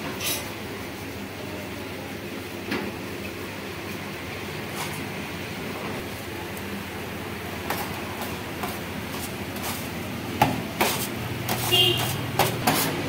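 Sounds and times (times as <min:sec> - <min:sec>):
metal scraper knocking on counter: 0:10.4 - 0:13.0.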